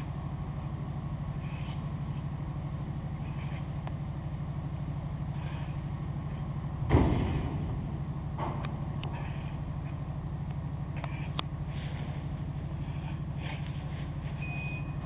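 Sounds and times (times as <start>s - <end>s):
ferry engines humming: 0.0s - 15.0s
loud thump: 6.8s - 8.9s.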